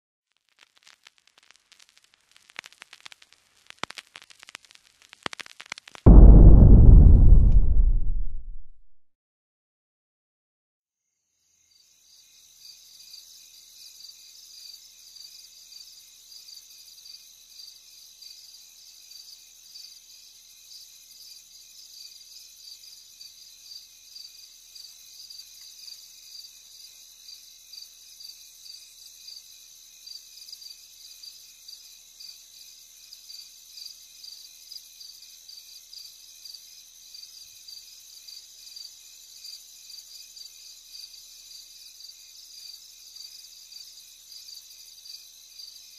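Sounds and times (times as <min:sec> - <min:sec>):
insects chirping trill: 0:11.4 - 0:45.9.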